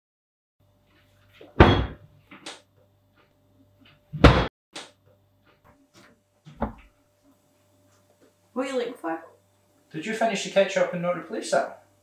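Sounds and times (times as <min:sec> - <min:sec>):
cabinet door knocks and clicks: 0:01.6 - 0:02.0, 0:04.2 - 0:04.5
cabinet doors slamming: 0:01.6 - 0:02.0, 0:04.2 - 0:04.5.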